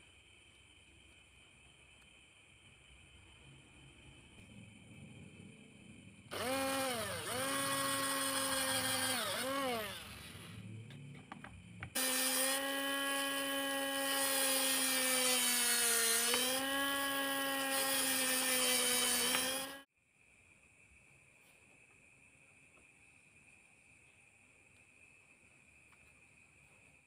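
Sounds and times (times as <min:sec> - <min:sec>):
electric drill whining: 0:06.3 - 0:10.3, 0:11.9 - 0:19.9.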